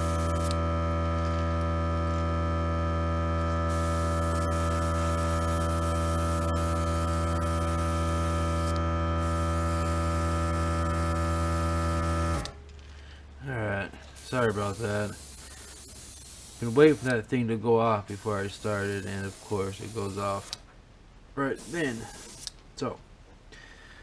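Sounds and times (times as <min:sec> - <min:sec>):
airbrush hissing: 0:00.0 - 0:00.5, 0:03.7 - 0:11.6, 0:14.1 - 0:17.2, 0:18.1 - 0:20.6, 0:21.6 - 0:22.5
air compressor motor humming: 0:00.0 - 0:12.6, 0:14.0 - 0:17.3, 0:18.1 - 0:20.6.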